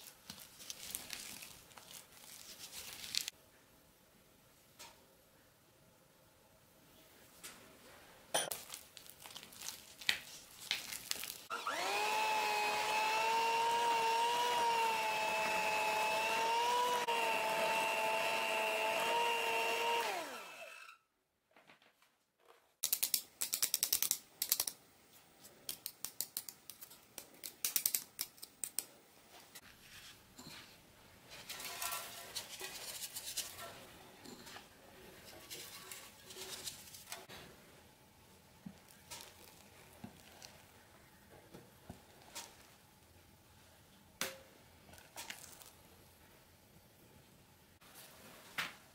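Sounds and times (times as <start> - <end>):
electric hand mixer running: 11.5 - 20.8.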